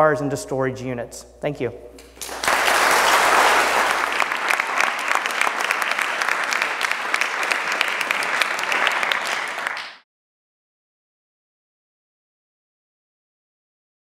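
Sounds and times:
audience applauding: 0:02.1 - 0:10.0.

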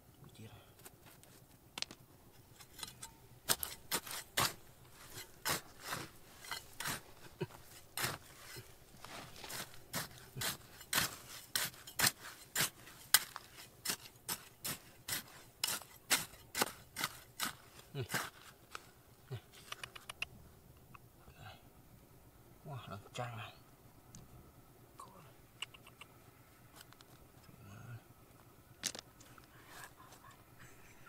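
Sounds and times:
hand tool scraping soil and stone: 0:02.4 - 0:19.8.

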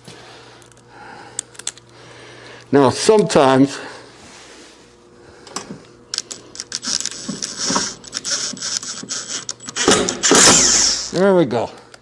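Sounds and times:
faint motor whine: 0:00.0 - 0:12.0
screw gun clicking and rattling: 0:01.4 - 0:01.9, 0:06.1 - 0:11.2.

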